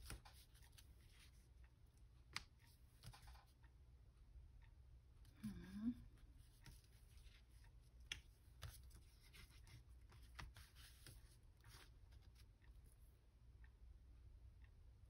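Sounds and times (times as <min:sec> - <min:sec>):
faint paper rustles: 0:06.4 - 0:12.5.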